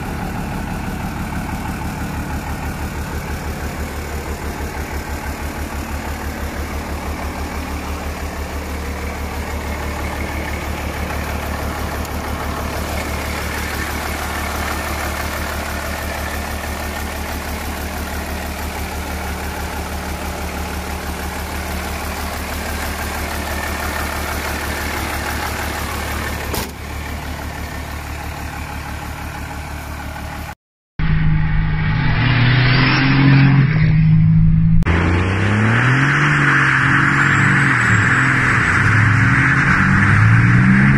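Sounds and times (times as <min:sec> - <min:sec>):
diesel engine idling: 0:00.0 - 0:30.6
truck accelerating hard: 0:31.1 - 0:40.9.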